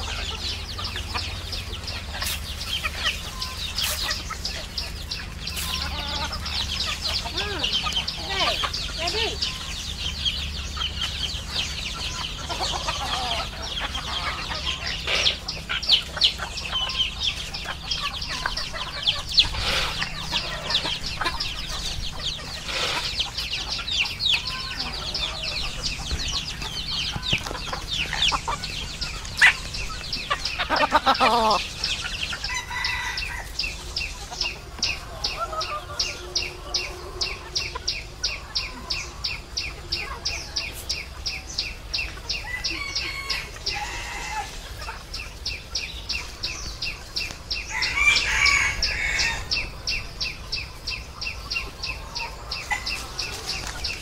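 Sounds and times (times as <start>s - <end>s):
chickens clucking: 0.0s - 54.0s
rooster crowing: 32.4s - 33.8s, 42.4s - 44.6s, 47.7s - 49.6s.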